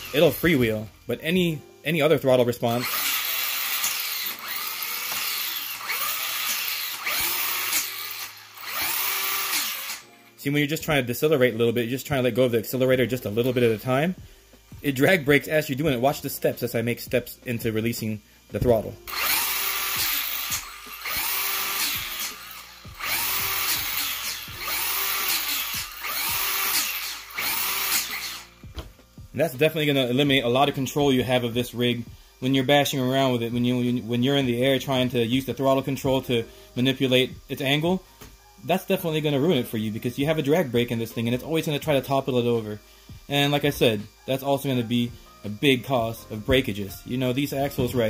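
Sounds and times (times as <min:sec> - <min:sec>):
electric motor whining: 0:00.0 - 0:01.1, 0:02.6 - 0:10.2, 0:18.0 - 0:29.2.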